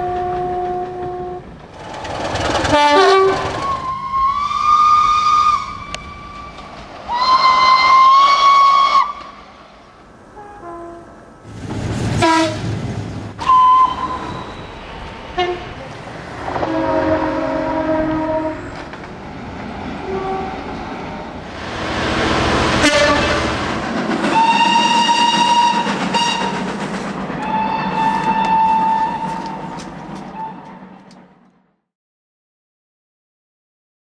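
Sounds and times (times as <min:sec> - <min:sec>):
train horn blasts: 0:00.0 - 0:01.6, 0:02.6 - 0:06.2, 0:07.1 - 0:09.3, 0:10.4 - 0:11.1, 0:12.2 - 0:12.6, 0:13.4 - 0:18.8, 0:20.0 - 0:20.7, 0:22.6 - 0:23.6, 0:24.3 - 0:26.6, 0:27.4 - 0:30.8
train rushing past: 0:00.0 - 0:31.6.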